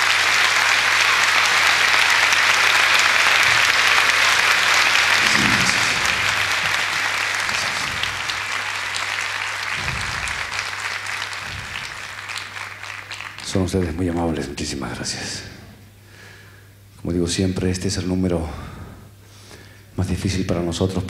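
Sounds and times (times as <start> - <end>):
large audience applauding: 0.0 - 14.6
low steady hum: 3.4 - 20.2.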